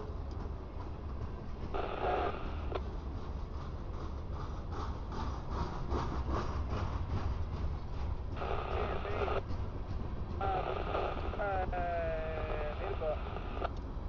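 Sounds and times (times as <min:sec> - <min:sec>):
freight train rumbling past: 0:00.0 - 0:14.0
train wheel clacks: 0:00.0 - 0:14.0
radio static burst: 0:01.8 - 0:02.8, 0:08.4 - 0:09.4, 0:10.4 - 0:13.7.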